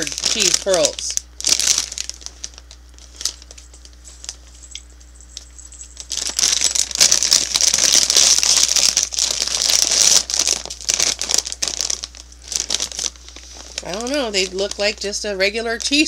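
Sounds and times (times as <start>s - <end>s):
plastic snack bag crinkling: 0.0s - 16.0s.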